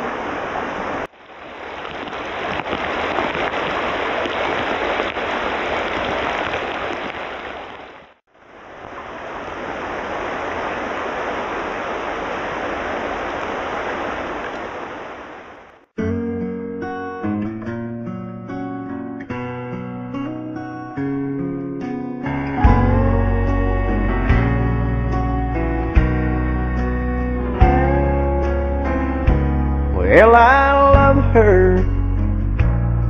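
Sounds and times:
creek water rushing over rocks: 0.0 - 15.8.

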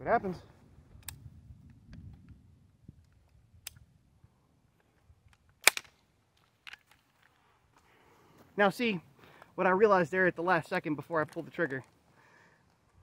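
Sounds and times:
rifle blank firing cracks: 5.4 - 6.0.

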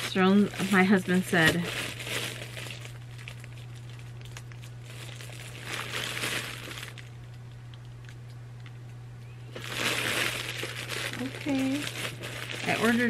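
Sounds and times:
faint crinkling and rustling: 0.0 - 8.8, 9.5 - 13.0
steady low hum: 0.0 - 13.0.

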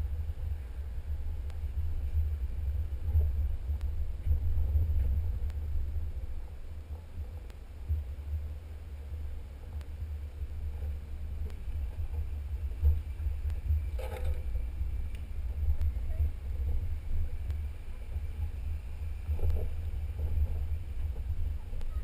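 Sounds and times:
vehicle rumbling on dirt trail: 0.0 - 22.0.

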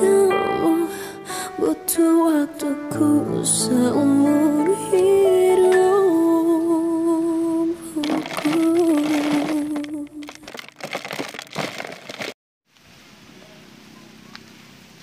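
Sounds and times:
soft backing music: 0.0 - 8.1.

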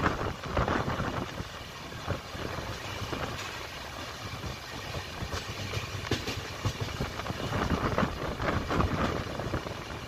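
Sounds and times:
train wheels clattering on rails: 0.0 - 10.0.

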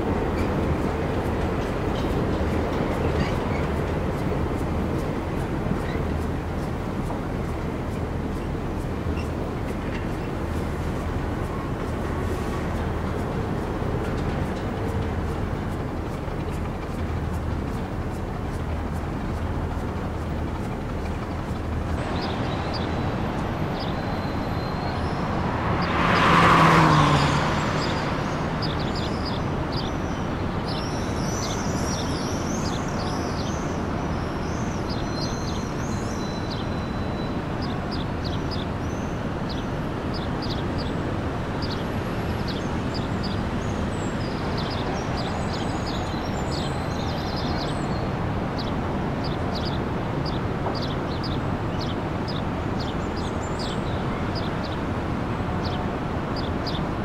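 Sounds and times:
road traffic hum: 0.0 - 57.0
small birds chirping: 16.0 - 54.8, 56.4 - 56.9
vehicle passing close: 22.0 - 29.9.

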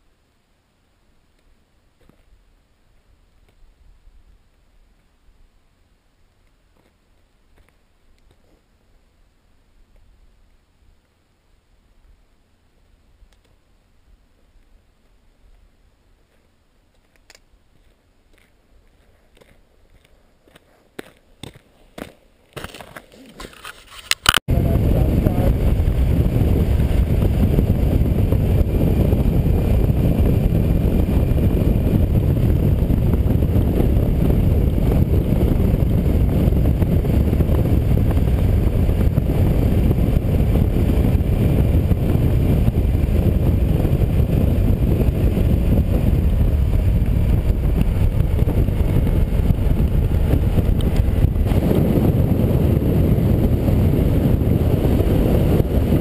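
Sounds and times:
wind rush on microphone: 24.2 - 56.0
motorcycle engine running: 24.6 - 56.0.

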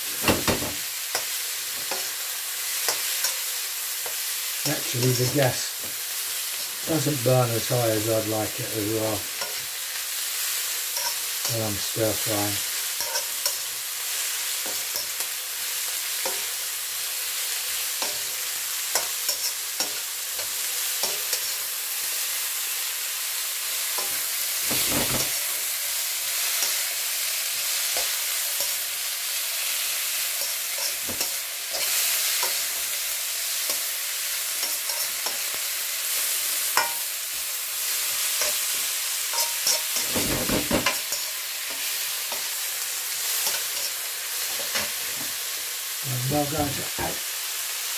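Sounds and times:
vegetables sizzling in wok: 0.0 - 47.9
spoon scraping metal wok: 10.5 - 11.4, 12.9 - 13.6, 30.3 - 32.7, 34.5 - 35.5, 36.7 - 37.0, 38.2 - 42.5.

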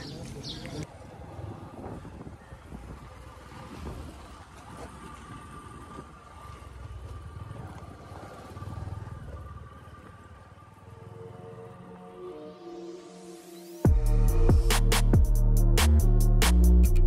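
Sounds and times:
motorcycle engine rumbling: 0.0 - 11.9
music: 11.0 - 17.0.

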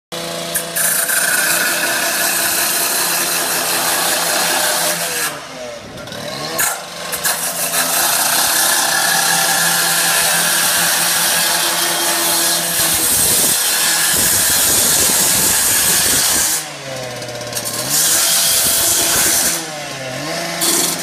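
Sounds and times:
cut-off saw cutting steel: 0.1 - 21.0.

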